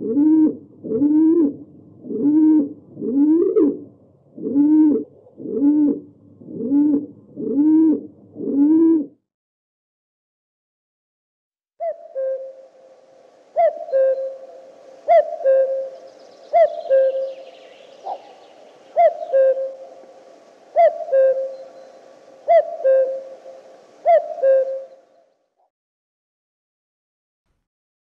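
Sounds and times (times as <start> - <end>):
cuckoo calling: 0.0 - 6.0, 11.8 - 25.3.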